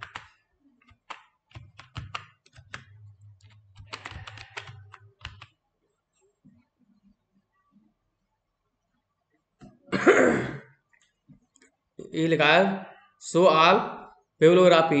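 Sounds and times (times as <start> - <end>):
typing on computer keyboard: 0.0 - 5.6.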